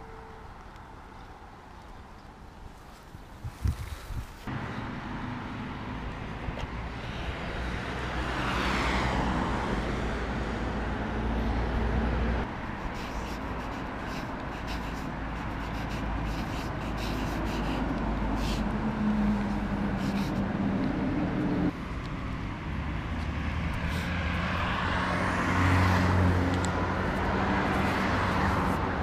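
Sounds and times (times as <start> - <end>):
low traffic rumble: 0.0 - 29.0
car passing by: 4.4 - 12.7, 17.1 - 29.0.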